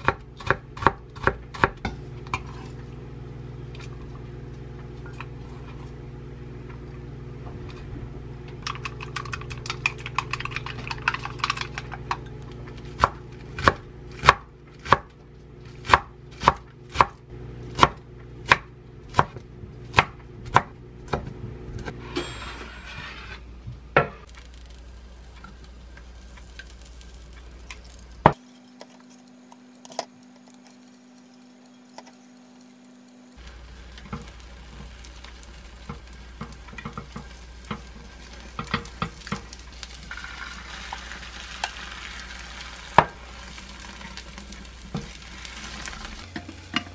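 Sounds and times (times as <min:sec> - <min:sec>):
knife chopping on wooden board: 0:00.0 - 0:02.6
faint sizzling in a pan: 0:24.0 - 0:46.9.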